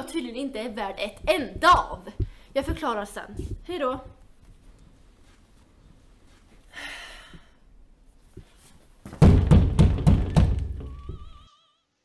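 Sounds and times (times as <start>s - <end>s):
knocking on door: 9.2s - 11.3s.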